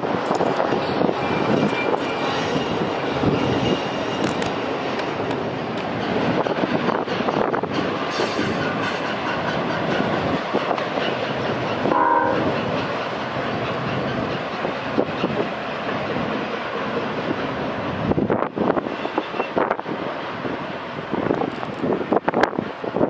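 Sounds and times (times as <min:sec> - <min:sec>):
train wheels rumbling on rail: 0:00.0 - 0:23.0
wind buffeting microphone: 0:00.0 - 0:23.0
train horn: 0:11.9 - 0:12.7.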